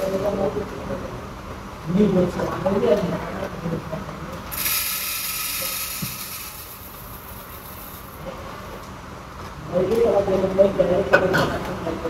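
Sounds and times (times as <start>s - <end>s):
coffee machine hissing: 4.5s - 8.3s.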